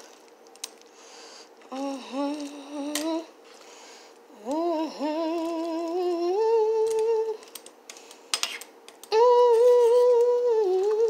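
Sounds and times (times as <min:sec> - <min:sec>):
woman humming: 0:01.7 - 0:03.3, 0:04.3 - 0:07.4, 0:09.1 - 0:11.0.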